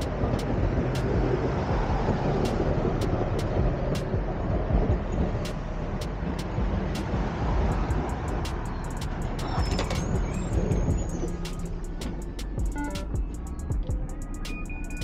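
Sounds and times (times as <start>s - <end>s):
bus engine rumble: 0.0s - 15.0s
sharp clicks: 8.1s - 15.0s.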